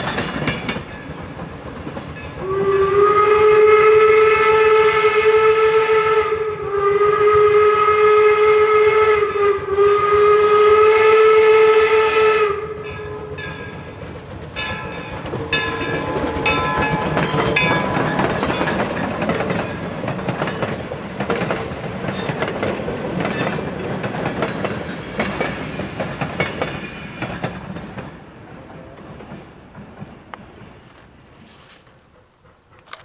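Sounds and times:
wheels clicking over rail joints: 0.0 - 2.6, 12.7 - 33.0
train passing: 0.0 - 33.0
steam locomotive whistle: 2.4 - 13.8.

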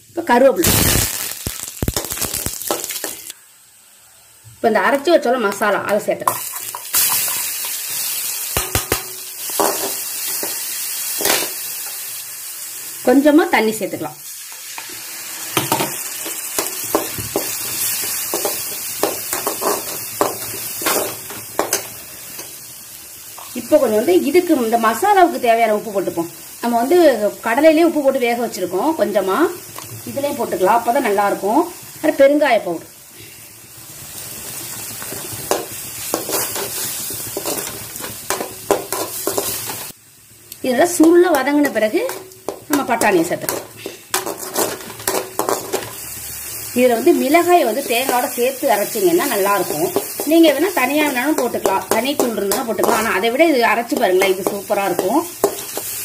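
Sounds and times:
masala sizzling in hot oil: 0.0 - 56.0
metal spoon scraping a pan: 6.3 - 8.0, 8.9 - 10.6, 15.6 - 22.5, 35.2 - 39.9, 41.6 - 46.0, 49.1 - 53.3, 53.9 - 56.0.

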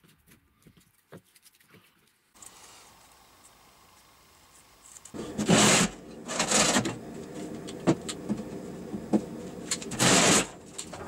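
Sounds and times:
steady low hum: 2.4 - 11.0
metal parts scraping and clattering: 4.9 - 8.2, 9.6 - 11.0.

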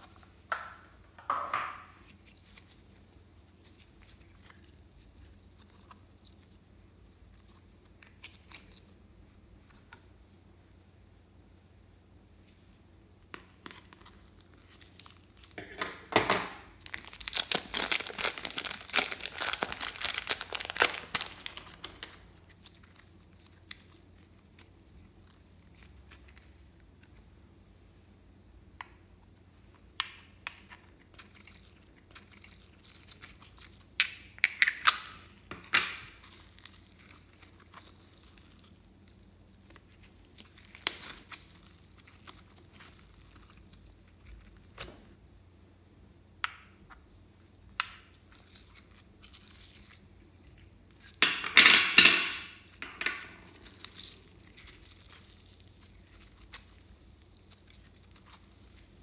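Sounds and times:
slime crackling and crinkling: 1.9 - 10.1, 12.6 - 15.6, 16.6 - 27.3, 29.2 - 34.0, 35.2 - 45.2, 47.1 - 51.2, 52.6 - 59.0.

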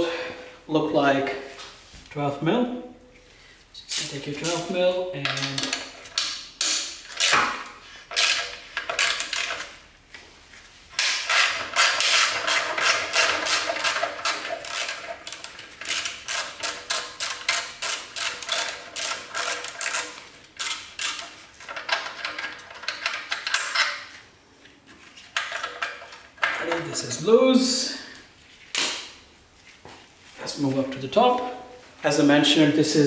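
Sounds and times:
ratchet wrench clicking: 11.3 - 21.3.

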